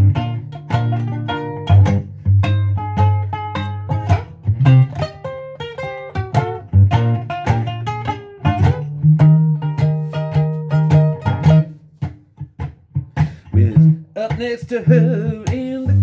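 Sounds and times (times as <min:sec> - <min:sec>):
low held bass notes: 0:00.0 - 0:05.2, 0:13.5 - 0:14.2
ukulele plucking: 0:00.0 - 0:16.0.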